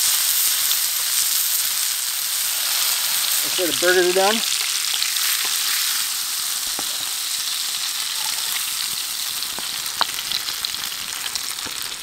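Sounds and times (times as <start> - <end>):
grease sizzling in a skillet: 0.0 - 12.0
small grease pops: 9.5 - 10.4.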